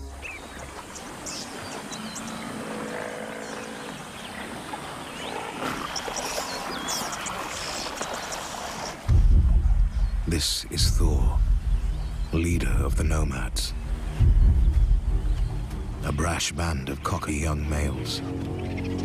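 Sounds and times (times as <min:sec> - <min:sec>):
water wash of buffalo wading: 0:00.0 - 0:09.2
birds chirping: 0:00.0 - 0:19.0.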